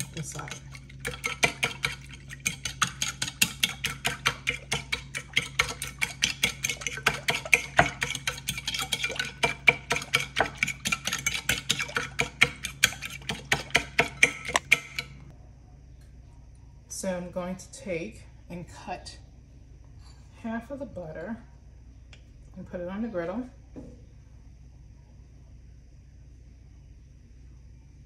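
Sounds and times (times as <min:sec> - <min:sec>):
fork tapping ceramic bowl: 0:01.0 - 0:15.2.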